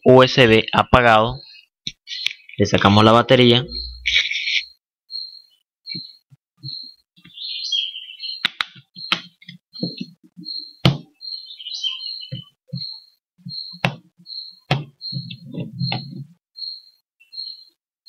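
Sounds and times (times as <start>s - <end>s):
plastic phone clicks and knocks: 10.8s - 11.1s, 14.7s - 14.9s
rubbing rumble: 15.1s - 16.4s.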